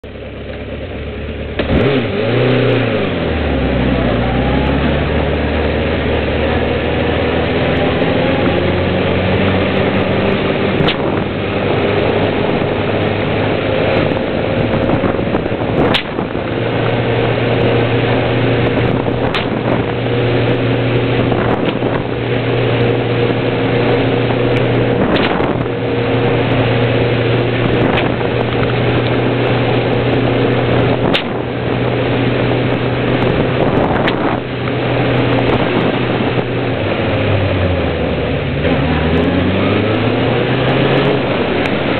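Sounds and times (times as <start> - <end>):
motorcycle engine revving: 0.0 - 41.9
whip cracks: 10.8 - 11.2, 15.8 - 16.2, 19.2 - 19.8, 25.1 - 25.6, 31.1 - 31.4.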